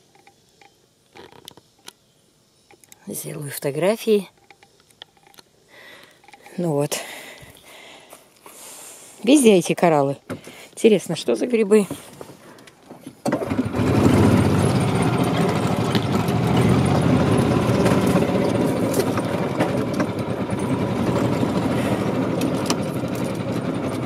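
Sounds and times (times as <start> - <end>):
small vehicle engine running: 13.3 - 24.0.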